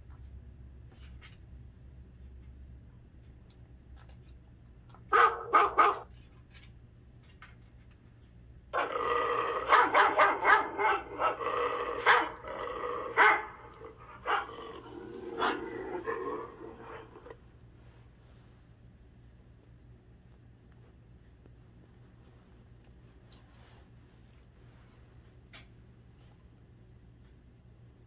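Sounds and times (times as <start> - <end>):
dog barking: 5.1 - 6.1, 8.8 - 17.4
dog growling: 8.8 - 17.5.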